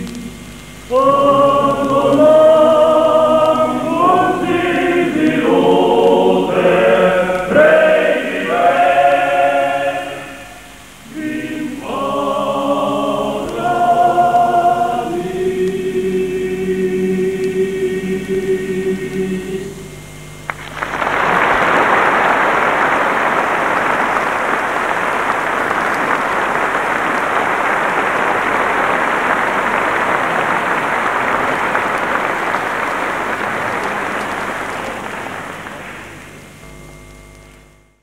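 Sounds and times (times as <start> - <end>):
male choir singing: 0.0 - 19.9
audience applause: 20.5 - 36.4.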